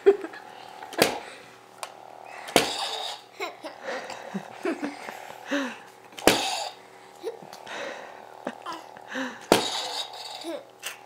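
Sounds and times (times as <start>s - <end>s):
soft laughter: 3.3s - 5.7s.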